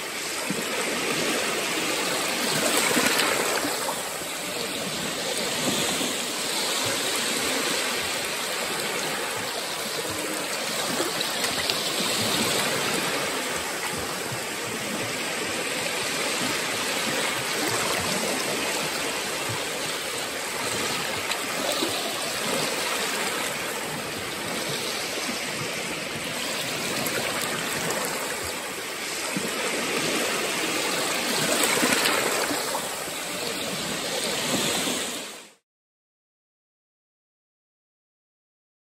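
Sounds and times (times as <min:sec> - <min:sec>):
small waves washing on sand: 0:00.0 - 0:35.6.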